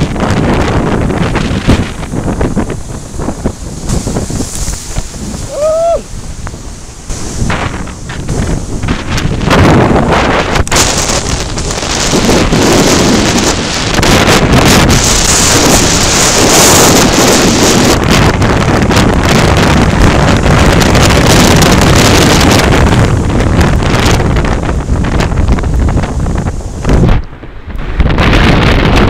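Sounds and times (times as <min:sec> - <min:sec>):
heavy surf breaking: 0:00.0 - 0:29.0
storm wind buffeting microphone: 0:00.0 - 0:29.0.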